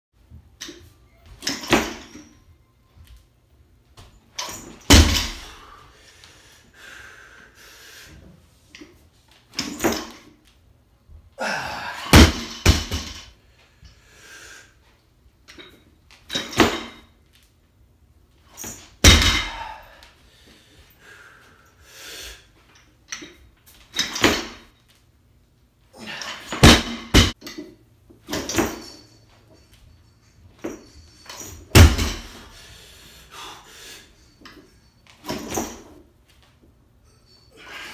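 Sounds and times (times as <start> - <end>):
barbell thudding and clanking: 0.6 - 2.4, 4.4 - 5.7, 12.1 - 13.3, 16.3 - 17.1, 18.6 - 19.8, 23.2 - 24.7, 26.4 - 29.2, 30.6 - 32.5, 34.4 - 35.9.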